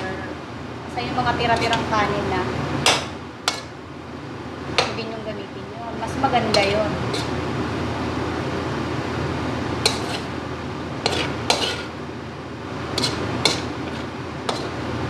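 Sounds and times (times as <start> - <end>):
steady frying hiss: 0.0 - 15.0
spatula clinking against wok: 13.0 - 13.7.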